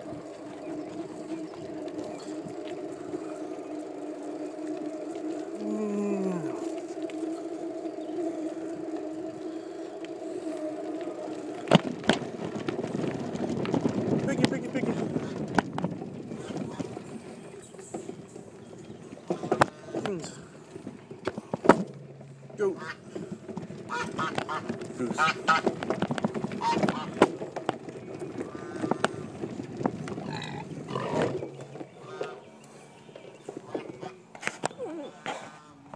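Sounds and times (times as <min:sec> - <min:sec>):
short falling whine: 0:00.0 - 0:15.6
bike tyre and rattle noise: 0:00.0 - 0:35.9
droning hum: 0:00.0 - 0:35.9
farm animals calling: 0:22.6 - 0:25.8, 0:26.5 - 0:27.3, 0:28.3 - 0:35.9.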